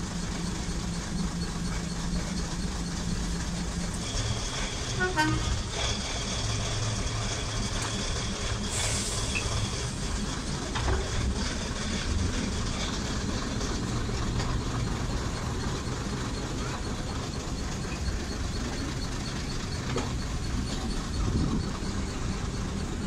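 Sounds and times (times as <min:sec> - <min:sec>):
diesel train engine running: 0:00.0 - 0:23.0
train horn toot: 0:04.8 - 0:05.8.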